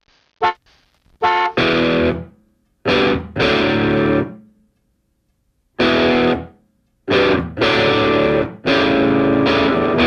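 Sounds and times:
distorted electric guitar chords: 1.2s - 4.5s, 5.8s - 10.0s.

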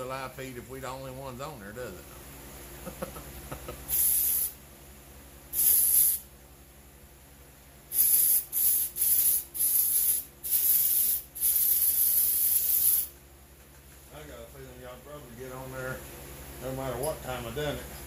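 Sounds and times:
aerosol spray can hissing: 3.9s - 4.6s, 5.5s - 6.2s, 7.9s - 13.2s.

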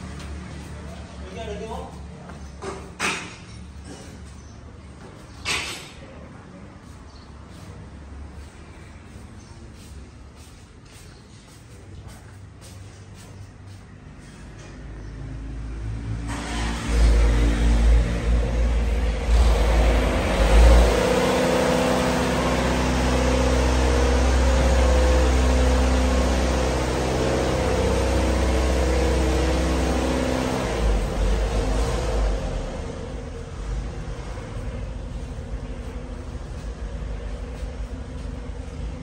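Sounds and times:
steam boiler machine drone: 16.2s - 39.0s.

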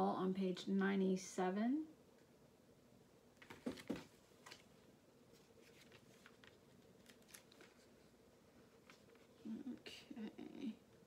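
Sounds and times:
paper brochure rustling: 3.4s - 9.4s.

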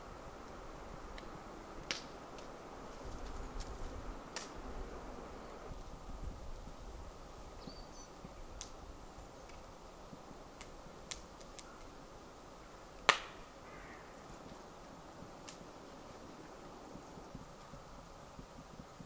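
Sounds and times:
faint outdoor ambience: 0.0s - 19.0s
wood fire crackling: 0.0s - 19.0s.

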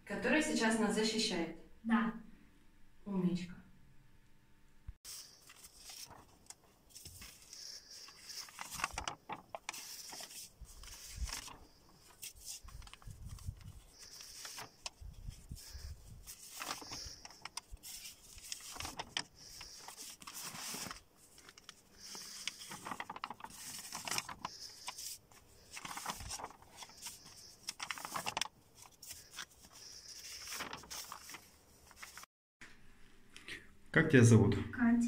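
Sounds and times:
paper sheets rustling and sliding: 5.0s - 32.3s.

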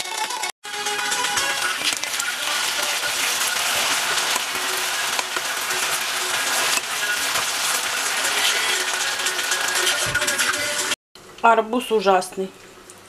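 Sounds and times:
potatoes sizzling in a pan: 1.2s - 10.3s.

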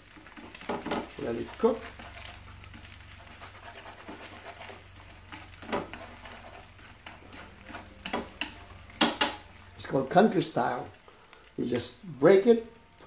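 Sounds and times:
chopsticks scraping eggs in pan: 0.1s - 9.6s
low hum: 1.0s - 11.6s.

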